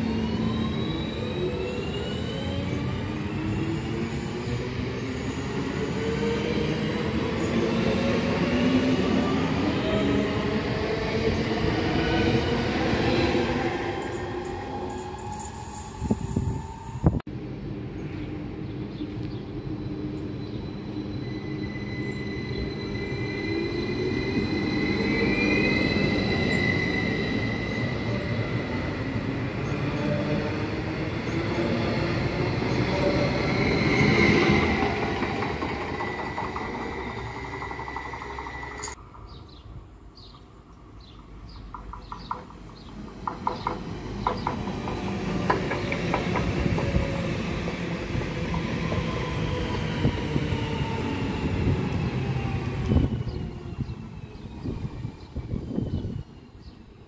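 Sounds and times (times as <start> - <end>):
train wheels rumbling on track: 0.0 - 57.0
high wheel squeal: 19.7 - 29.0, 31.8 - 39.0.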